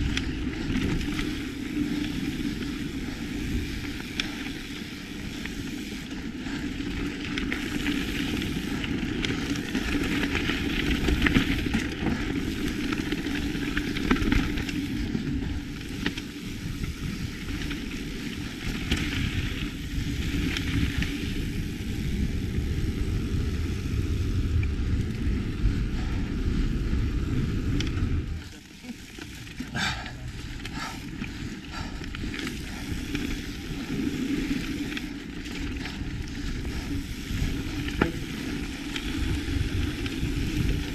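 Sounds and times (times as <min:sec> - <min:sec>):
wind rumble on microphone: 0:00.0 - 0:28.6, 0:29.8 - 0:40.9
bike tyres hissing over gravel: 0:00.0 - 0:40.9
bike knocks and rattles: 0:37.7 - 0:38.5.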